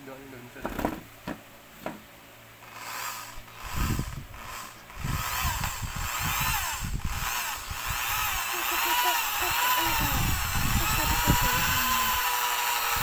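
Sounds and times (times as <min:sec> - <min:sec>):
short knocks: 0:00.6 - 0:02.1
electric drill motor whine: 0:02.6 - 0:13.0.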